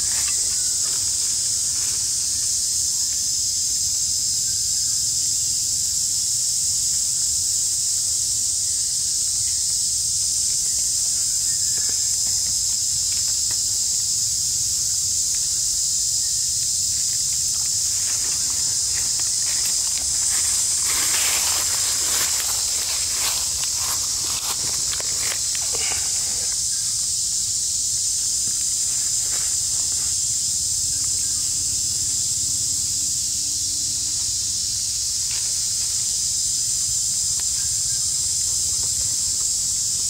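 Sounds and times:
rustling in dry leaves: 0:00.0 - 0:02.8, 0:16.6 - 0:27.2
insects droning: 0:00.0 - 0:40.0.

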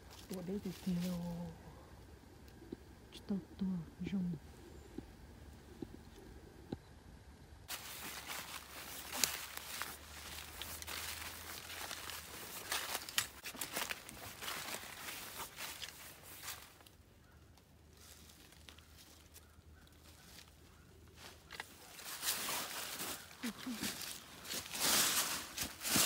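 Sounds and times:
dry leaves and twigs crunching: 0:00.0 - 0:02.6, 0:07.7 - 0:26.0.

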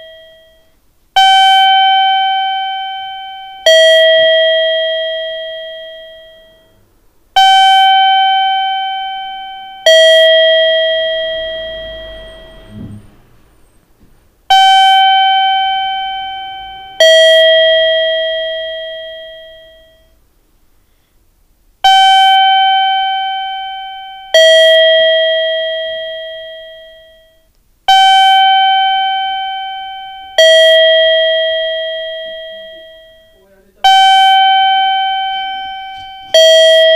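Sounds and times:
two-tone electronic chime: 0:00.0 - 0:06.8, 0:07.4 - 0:13.0, 0:14.5 - 0:20.2, 0:21.8 - 0:36.9
faint low rumble: 0:00.0 - 0:27.5.

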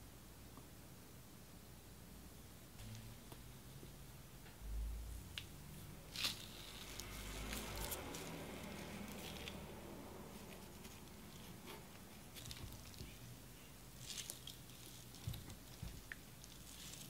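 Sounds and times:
wet squishing of whisked yogurt: 0:10.4 - 0:17.0.

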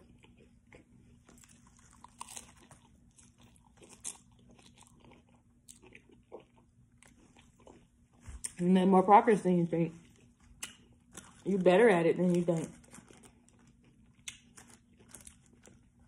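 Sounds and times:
chewing crisp taco shell: 0:00.0 - 0:08.6, 0:10.0 - 0:11.5, 0:12.6 - 0:16.0.

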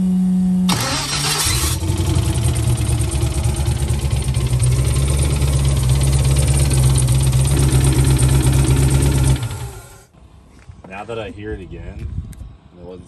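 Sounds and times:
car engine idling: 0:00.7 - 0:10.1.

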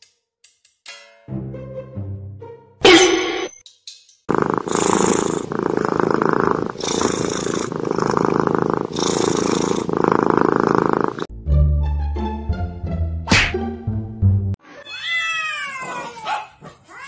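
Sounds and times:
kitten purring: 0:04.3 - 0:11.3.

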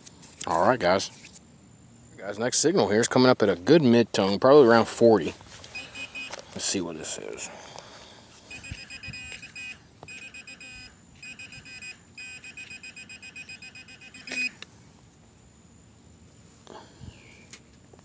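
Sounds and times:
metal detector pinpointer beeping: 0:05.7 - 0:06.4, 0:08.5 - 0:14.6.

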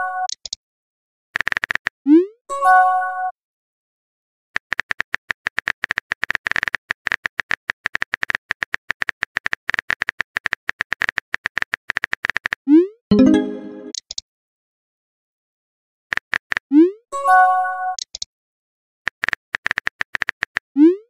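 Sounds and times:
synth notes: 0:13.1 - 0:14.0.

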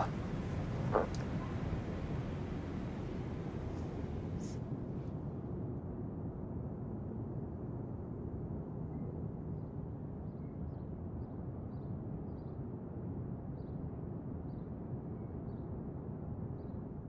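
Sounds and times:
low background rumble: 0:00.0 - 0:05.5.

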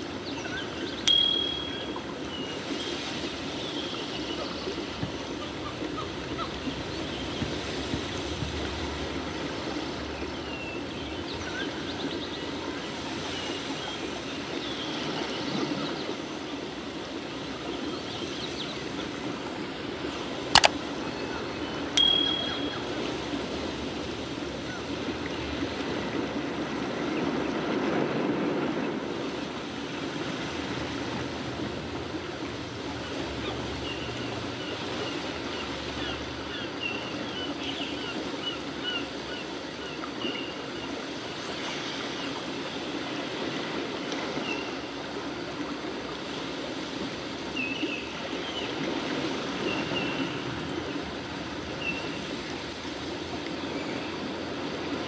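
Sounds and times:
faint high chirps: 0:01.1 - 0:02.0, 0:22.0 - 0:23.0
bright bell ding: 0:01.1 - 0:02.1, 0:22.0 - 0:23.1.

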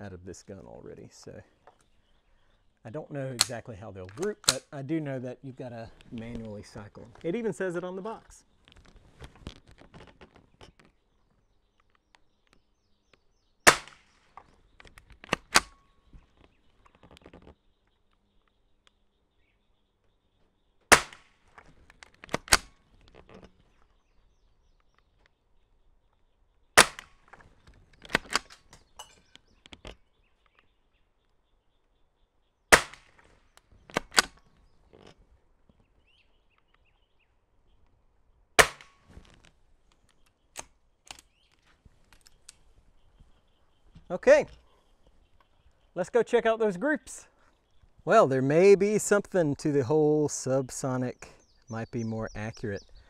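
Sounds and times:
rifle shots: 0:13.7 - 0:14.2, 0:20.9 - 0:21.3, 0:26.8 - 0:27.2, 0:32.7 - 0:33.2, 0:38.6 - 0:39.0.

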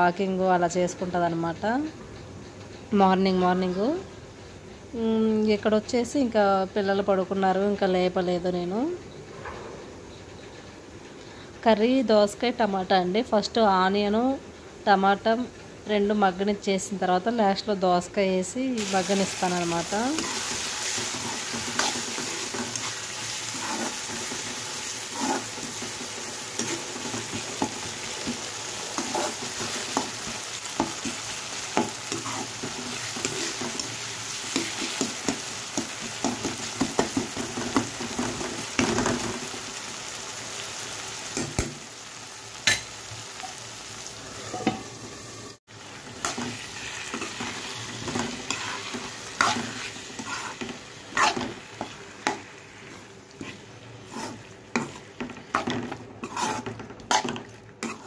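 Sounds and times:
vegetables sizzling in oil: 0:14.9 - 0:58.0
steel spoon scraping pan: 0:19.0 - 0:31.2, 0:46.2 - 0:58.0.

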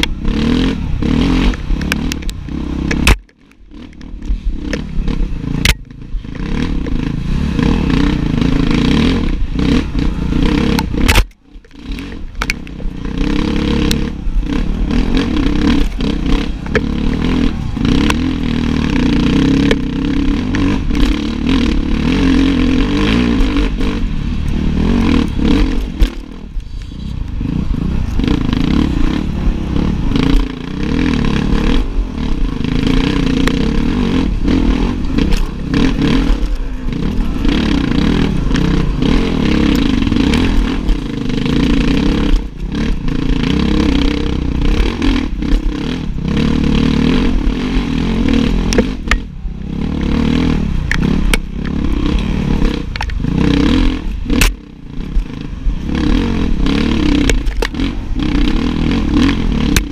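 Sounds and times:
dirtbike engine running hard: 0:00.0 - 0:59.9
bike knocks and rattles: 0:01.1 - 0:07.1, 0:10.7 - 0:13.1, 0:13.7 - 0:26.6, 0:50.0 - 0:59.9.

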